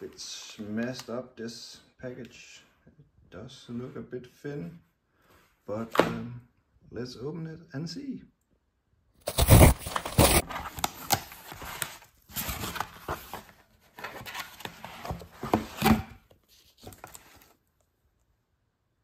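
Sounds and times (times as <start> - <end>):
cardboard rustling and scraping: 9.2 - 17.6
plastic sleeve crinkling: 9.3 - 13.4.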